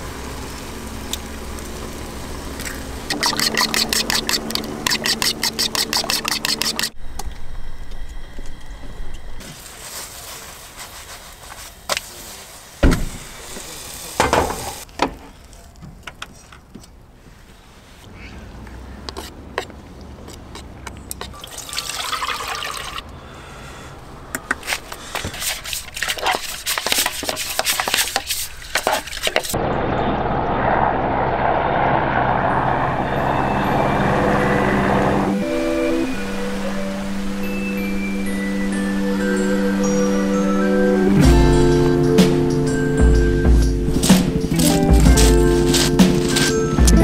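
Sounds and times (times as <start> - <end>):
water pouring into a frying pan: 21.4 - 23.0.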